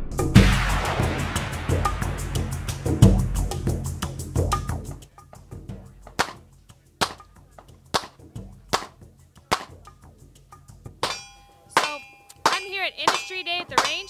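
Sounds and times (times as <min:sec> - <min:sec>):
steady ringing tone: 0:11.0 - 0:14.0.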